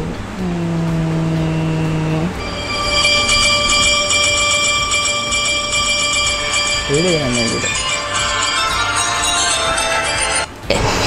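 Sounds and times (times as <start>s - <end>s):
held low note: 2.3s - 10.5s
chiming sparkle sound effect: 2.4s - 10.5s.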